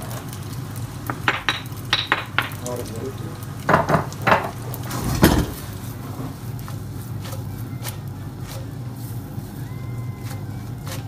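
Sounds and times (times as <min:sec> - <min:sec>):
utensil knocking: 0:01.1 - 0:02.7, 0:03.7 - 0:04.6.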